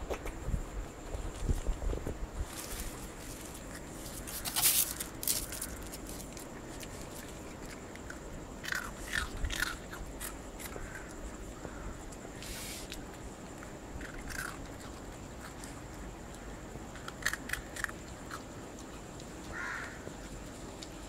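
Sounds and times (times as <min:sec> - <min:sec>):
puppy crunching biscuit: 0:02.6 - 0:11.4, 0:12.9 - 0:21.0.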